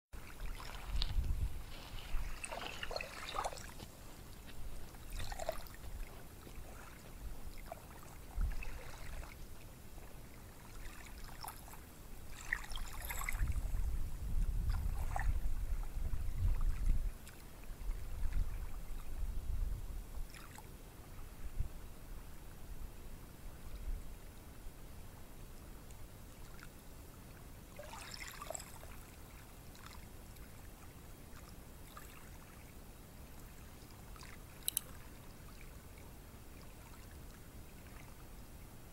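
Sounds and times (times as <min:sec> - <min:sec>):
waves breaking on sandy beach: 0:00.2 - 0:09.4.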